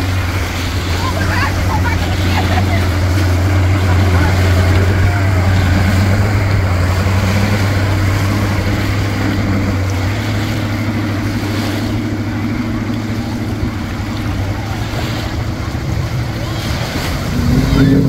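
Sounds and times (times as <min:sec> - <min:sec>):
outboard motor running: 0:00.0 - 0:18.0
propeller churning water: 0:00.0 - 0:18.0.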